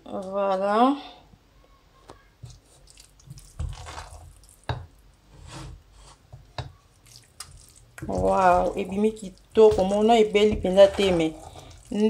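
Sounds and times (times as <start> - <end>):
wet rice squelching: 2.5 - 4.7, 6.9 - 12.0.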